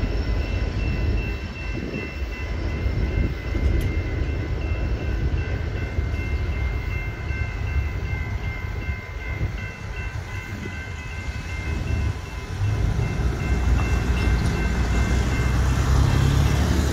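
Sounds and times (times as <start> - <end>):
railroad crossing bells ringing: 0.0 - 16.9
road traffic rumble: 10.9 - 16.9.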